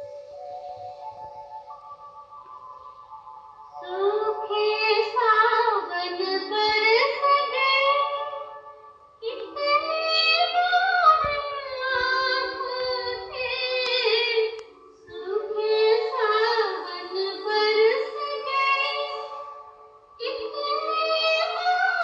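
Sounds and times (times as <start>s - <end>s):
music: 0.0s - 22.0s
high-pitched voice singing: 3.8s - 8.5s, 9.2s - 19.4s, 20.2s - 22.0s.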